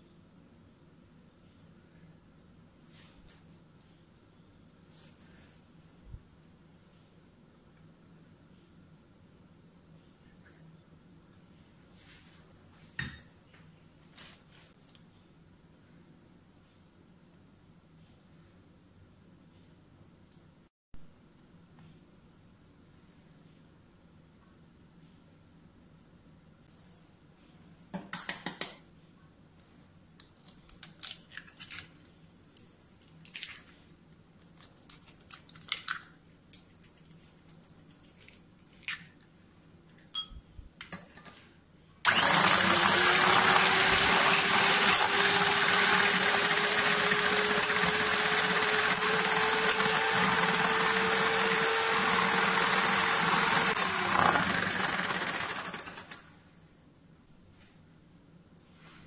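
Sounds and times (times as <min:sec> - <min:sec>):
electric hand mixer whirring: 0:42.1 - 0:56.2.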